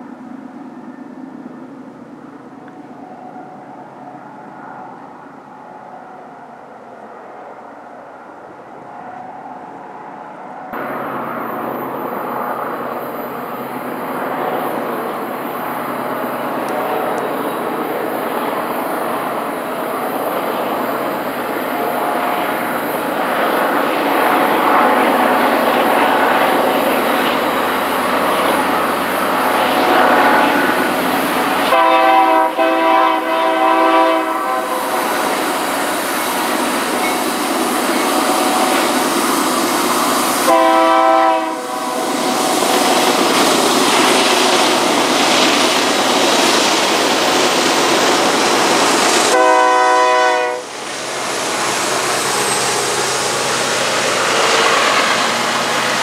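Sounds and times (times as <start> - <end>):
train rumbling: 0.0 - 56.0
locomotive air horn blasts: 31.7 - 35.3, 40.4 - 42.3, 49.3 - 50.7.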